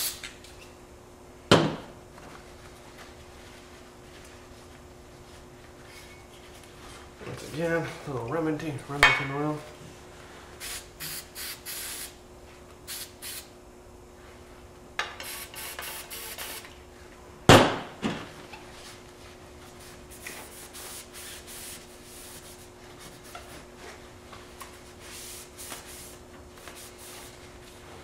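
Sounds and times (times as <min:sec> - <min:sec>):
aerosol spray hissing: 0:10.6 - 0:12.2, 0:12.9 - 0:13.5, 0:15.3 - 0:16.6.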